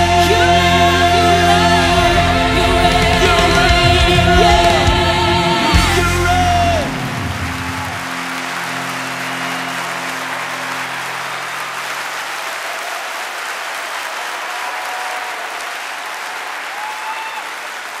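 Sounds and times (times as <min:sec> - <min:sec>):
live band held chord: 0:00.0 - 0:12.4
audience applause: 0:00.0 - 0:18.0.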